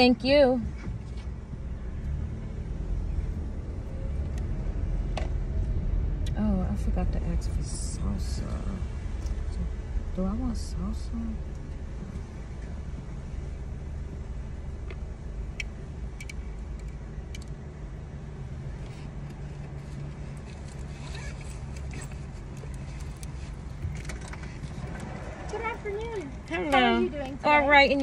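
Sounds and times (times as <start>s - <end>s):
car engine hum from inside: 0.0s - 28.0s
rustling: 18.8s - 26.6s.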